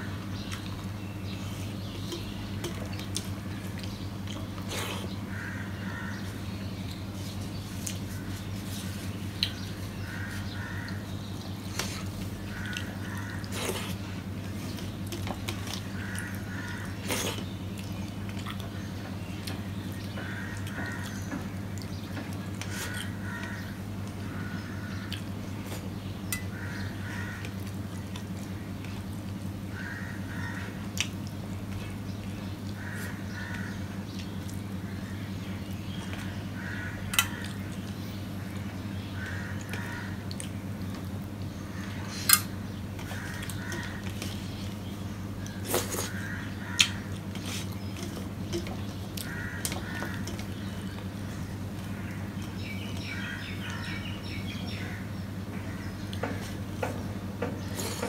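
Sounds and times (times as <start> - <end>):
bird calling: 41.6 - 58.0.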